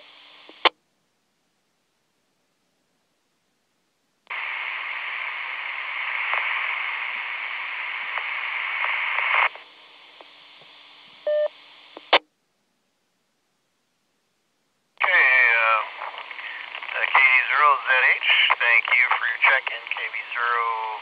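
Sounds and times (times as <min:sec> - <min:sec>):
radio static hiss: 0:00.0 - 0:00.8, 0:04.3 - 0:12.3, 0:15.0 - 0:21.0
radio squelch tail burst: 0:15.0 - 0:21.0.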